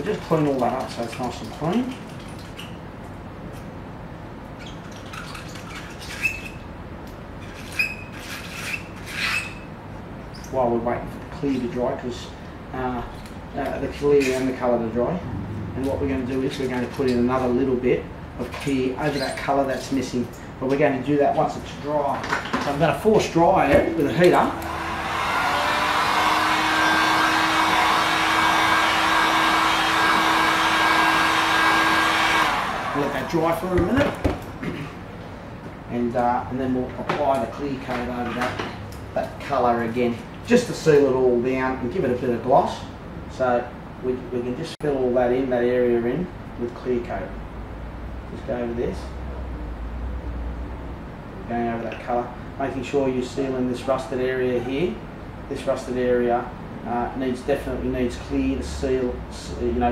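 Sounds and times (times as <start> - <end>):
short high squeaks: 4.6 - 6.6, 7.4 - 9.7
hot-air heater blowing: 22.8 - 35.8.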